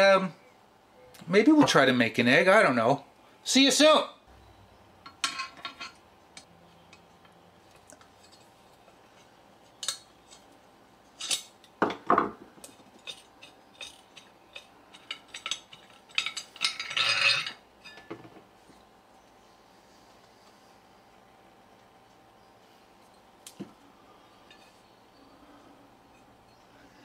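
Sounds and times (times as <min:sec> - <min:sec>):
metal ring clinking: 0:13.0 - 0:18.1.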